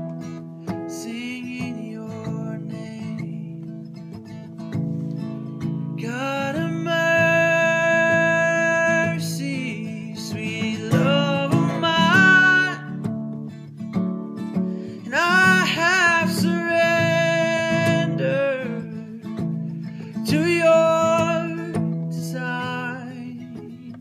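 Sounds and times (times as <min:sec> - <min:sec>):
acoustic guitar: 0:00.0 - 0:24.0
man singing: 0:00.8 - 0:04.0, 0:05.8 - 0:13.2, 0:15.0 - 0:24.0.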